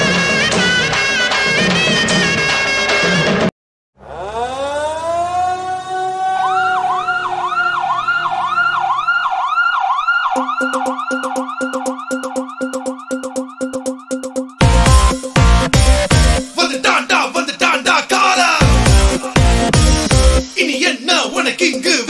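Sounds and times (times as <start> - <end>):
siren-like warbling tone: 4.0 - 15.2
pulsing beat: 10.2 - 21.9.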